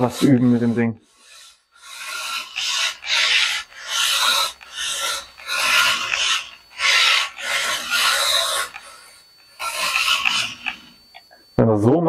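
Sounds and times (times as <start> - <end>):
toy car tyres scraping on mat: 0.0 - 9.0.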